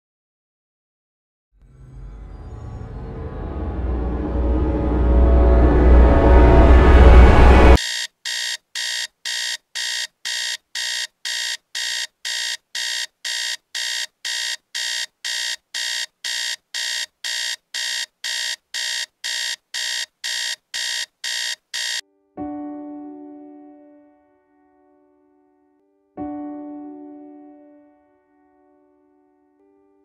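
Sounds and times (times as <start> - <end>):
electronic alarm beeps: 7.8 - 22.0.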